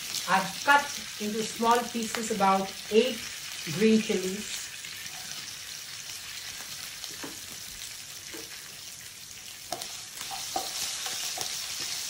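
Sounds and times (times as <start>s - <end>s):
hot oil sizzling in a pan: 0.0s - 12.0s.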